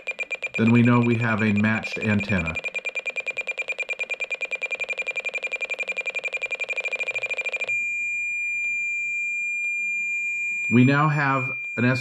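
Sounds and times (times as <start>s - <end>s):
rapid high beeps: 0.0s - 7.8s, 10.4s - 12.0s
solid steady tone: 4.5s - 12.0s.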